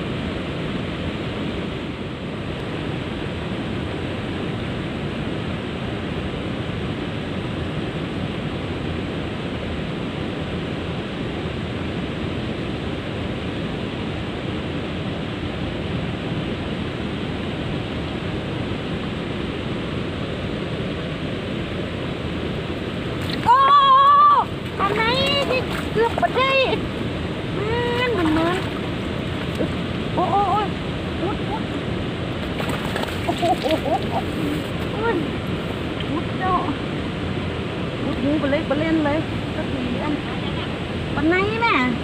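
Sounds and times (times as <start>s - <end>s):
water rushing over weir: 20.9s - 42.0s.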